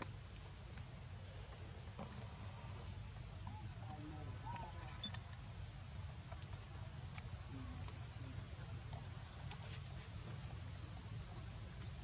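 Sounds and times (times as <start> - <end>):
faint squeaks and chirps: 0.9 - 5.6.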